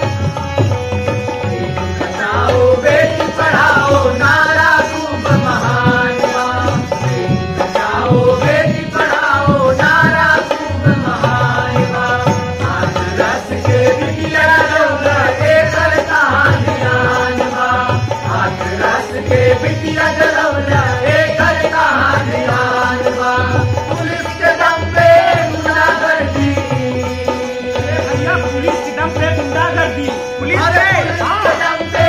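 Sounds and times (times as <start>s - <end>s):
hand drums rhythm: 0.0s - 32.0s
harmonium: 0.0s - 32.0s
lead singer and chorus singing: 0.0s - 32.0s.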